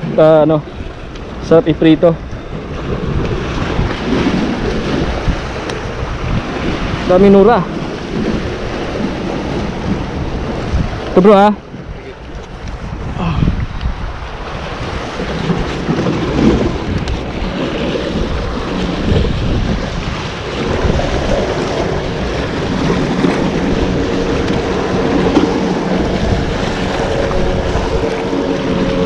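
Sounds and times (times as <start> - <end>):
waves breaking over rocks: 0.0 - 29.0
wind buffeting microphone: 0.0 - 29.0.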